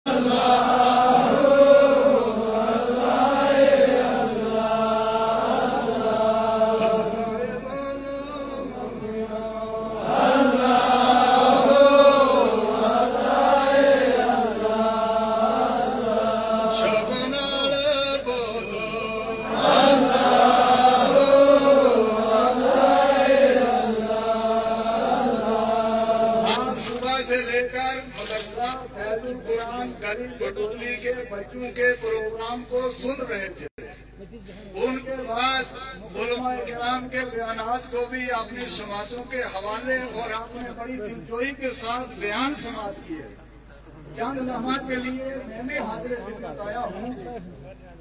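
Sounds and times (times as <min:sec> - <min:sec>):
person chanting over loudspeaker: 0:00.0 - 0:32.8.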